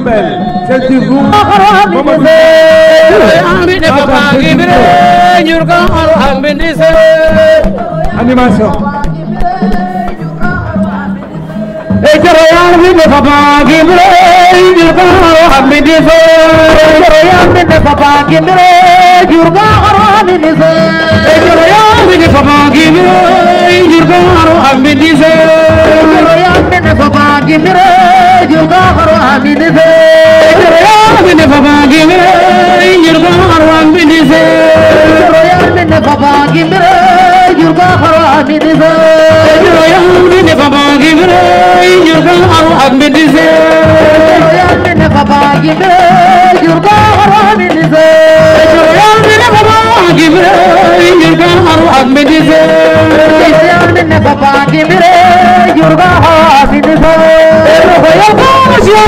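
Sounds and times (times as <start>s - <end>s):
woman singing a cappella: 12.0s - 59.0s.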